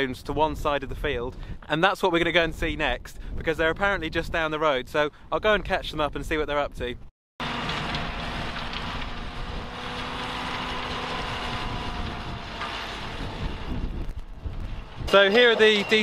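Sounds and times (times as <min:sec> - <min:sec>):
rushing mechanical noise: 0:07.4 - 0:16.0
tractor engine hum: 0:07.4 - 0:16.0.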